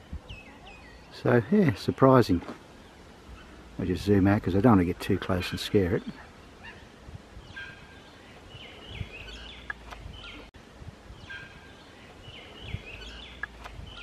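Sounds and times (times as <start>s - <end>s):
birds chirping and whistling: 0.0s - 2.1s, 5.1s - 10.5s, 11.1s - 14.0s.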